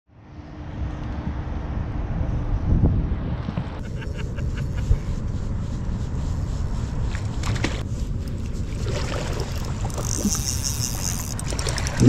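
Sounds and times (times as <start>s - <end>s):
wind buffeting microphone: 1.3s - 3.8s.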